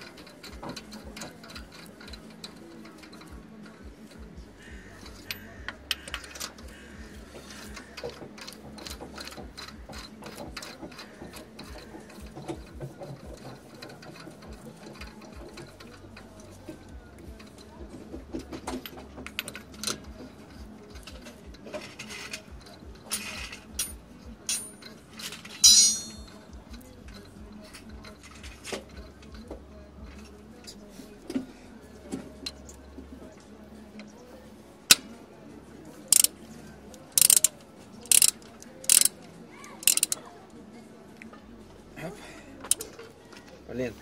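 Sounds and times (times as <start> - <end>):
metallic clink: 23.1 - 26.4
socket ratchet clicking: 36.1 - 36.3, 37.1 - 39.2, 39.8 - 40.2.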